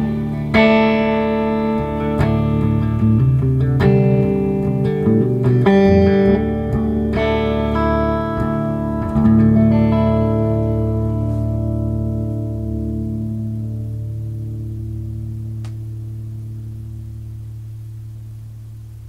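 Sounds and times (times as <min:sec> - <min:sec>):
electric guitar chords ringing: 0:00.0 - 0:19.0.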